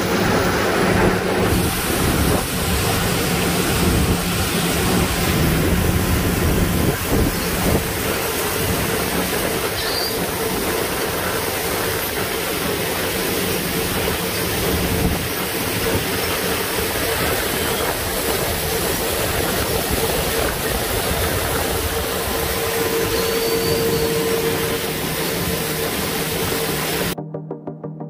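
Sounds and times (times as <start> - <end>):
harvester machinery rumbling: 0.0 - 27.2.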